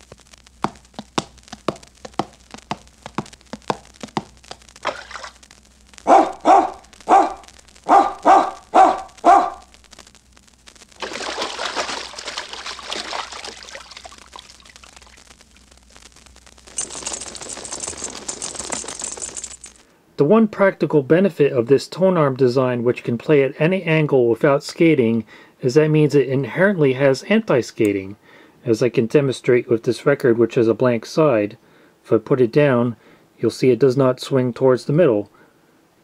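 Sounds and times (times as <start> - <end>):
ball bouncing: 0.0 - 5.4
hissing noise: 0.0 - 19.0
dog barking: 6.1 - 9.7.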